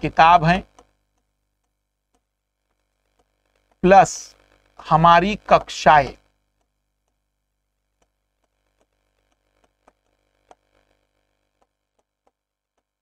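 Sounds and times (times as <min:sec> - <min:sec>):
ticks of writing on a board: 0:08.0 - 0:10.9, 0:11.5 - 0:13.0.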